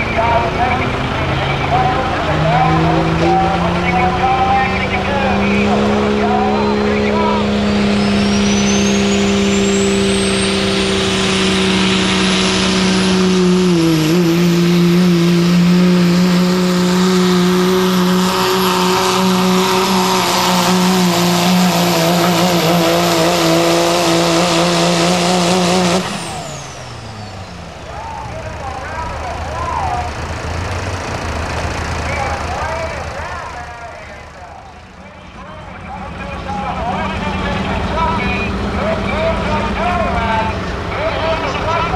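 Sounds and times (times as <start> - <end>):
diesel engine at full throttle: 0.0 - 41.9
turbo whistle: 6.4 - 12.8.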